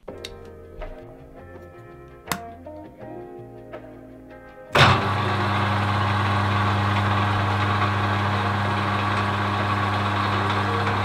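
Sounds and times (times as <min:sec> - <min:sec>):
metal lathe motor hum: 0:04.8 - 0:11.0.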